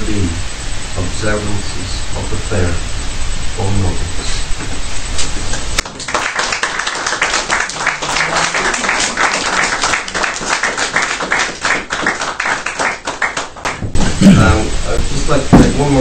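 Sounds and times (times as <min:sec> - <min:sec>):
audience applauding: 0:05.8 - 0:13.9.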